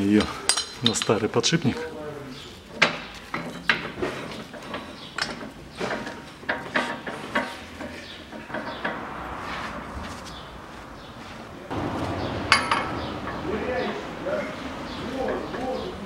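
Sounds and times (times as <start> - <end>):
metal clinks and knocks: 0.5 - 1.2, 2.7 - 9.2, 12.5 - 13.5.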